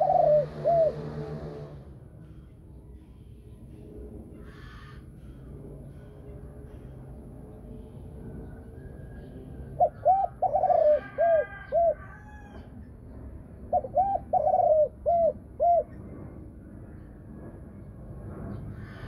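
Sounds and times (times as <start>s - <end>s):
dove cooing: 0.0s - 1.8s, 9.7s - 12.7s, 13.7s - 16.0s.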